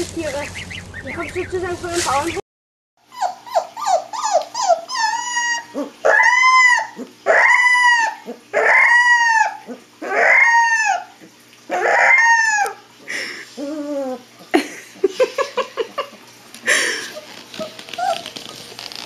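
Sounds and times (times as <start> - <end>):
puppy whimpering: 3.0 - 12.8, 13.5 - 14.3, 16.7 - 19.0
puppy howling: 3.0 - 12.9, 13.6 - 14.3, 17.1 - 18.4.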